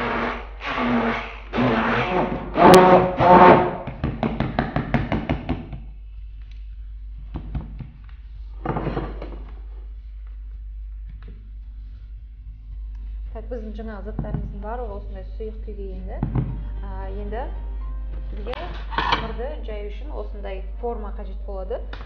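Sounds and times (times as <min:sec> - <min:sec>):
immersion blender whirring: 0:00.0 - 0:03.8
blender knocking on counter: 0:02.8 - 0:05.8.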